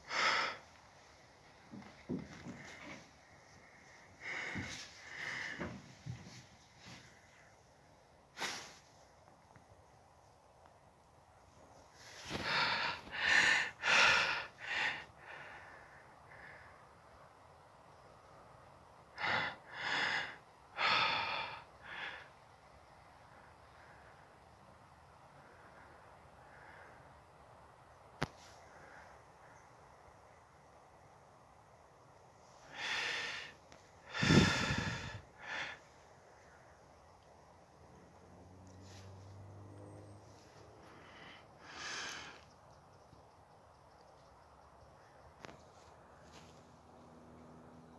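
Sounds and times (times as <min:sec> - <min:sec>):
person breathing out heavily: 0:00.0 - 0:00.8, 0:01.7 - 0:07.1, 0:12.0 - 0:16.8, 0:19.2 - 0:22.3, 0:32.6 - 0:36.7, 0:40.7 - 0:42.4.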